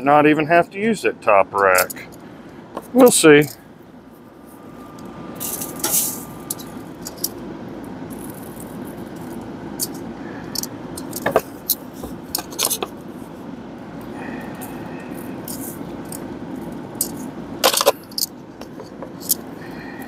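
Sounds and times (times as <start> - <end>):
grill rushing: 4.2 - 18.2
metal tongs scraping grill grate: 4.8 - 7.4, 8.1 - 12.9.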